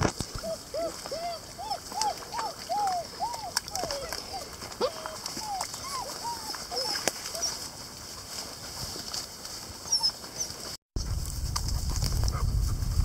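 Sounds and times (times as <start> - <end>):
puppies whining softly: 0.4 - 7.7, 9.8 - 10.7
twigs snapping under paws: 1.9 - 7.5
wind rumbling on microphone: 11.0 - 13.0.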